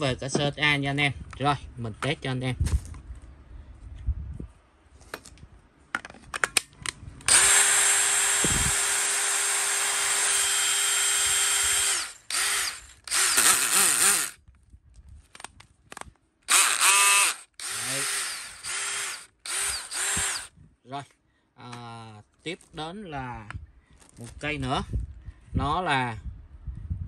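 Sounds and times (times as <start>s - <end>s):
cordless drill spinning: 7.2s - 14.4s, 16.5s - 20.5s
drill clicks: 7.2s - 14.4s, 16.4s - 20.5s.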